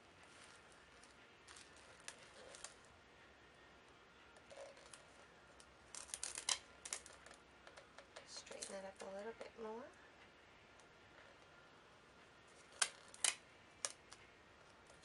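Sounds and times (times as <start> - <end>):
tape handling sounds: 0.2 - 2.9, 4.4 - 8.9, 12.5 - 15.0.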